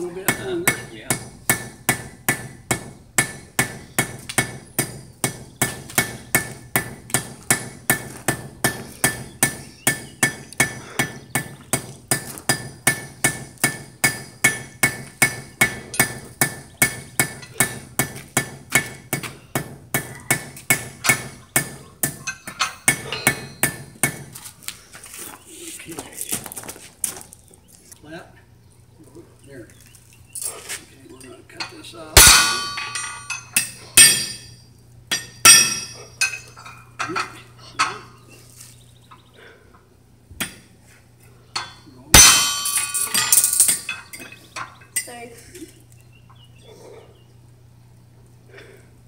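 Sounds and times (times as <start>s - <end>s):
hammer striking metal on anvil: 0.3s - 24.3s, 31.6s - 37.2s, 41.6s - 45.1s
anvil ringing: 20.0s - 24.3s, 31.6s - 38.2s, 41.6s - 45.1s.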